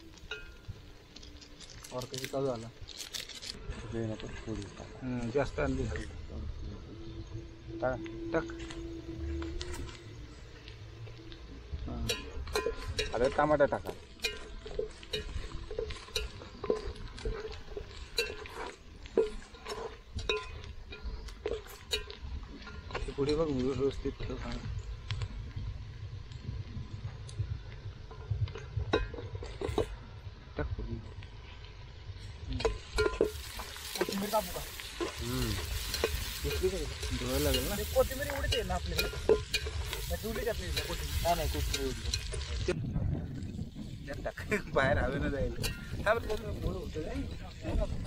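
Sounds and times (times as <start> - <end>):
food sizzling: 4.2 - 24.1, 32.3 - 42.8
metal spoon scraping a pot: 32.6 - 42.5.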